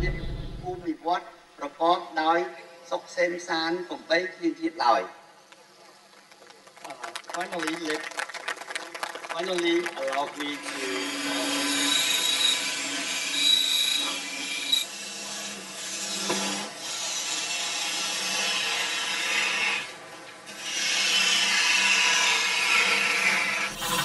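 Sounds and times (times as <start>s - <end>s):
lathe tool scraping wood: 10.6s - 19.9s, 20.5s - 24.0s.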